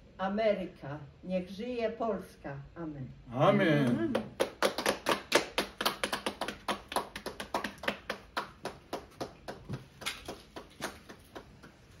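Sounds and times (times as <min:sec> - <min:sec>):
group clapping in rhythm: 0:03.8 - 0:12.0.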